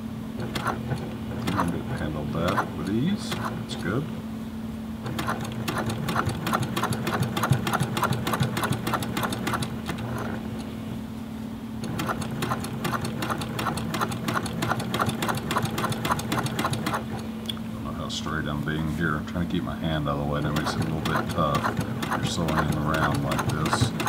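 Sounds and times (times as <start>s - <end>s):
steady low hum: 0.0s - 24.0s
sewing machine needle clattering: 0.4s - 3.6s, 5.0s - 10.4s, 11.8s - 17.2s, 20.4s - 24.0s.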